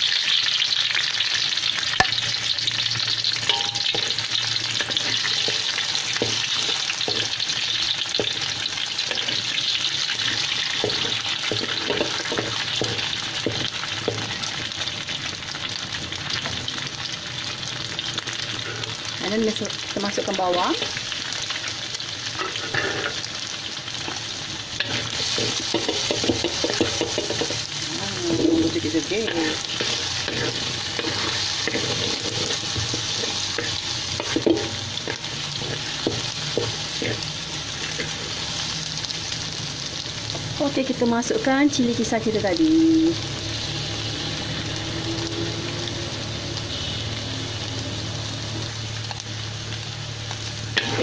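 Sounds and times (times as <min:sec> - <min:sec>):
onions and egg sizzling in oil: 0:00.0 - 0:51.0
spatula scraping a pan: 0:03.5 - 0:14.3, 0:22.3 - 0:23.3, 0:24.0 - 0:38.5, 0:50.8 - 0:51.0.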